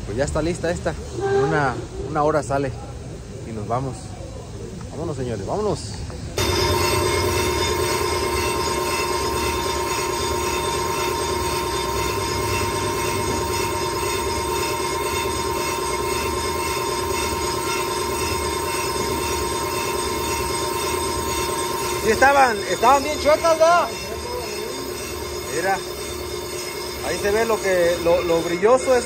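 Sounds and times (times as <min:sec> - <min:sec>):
low machine hum: 0:06.4 - 0:29.0
metallic squeal of cutting bit: 0:06.4 - 0:29.0.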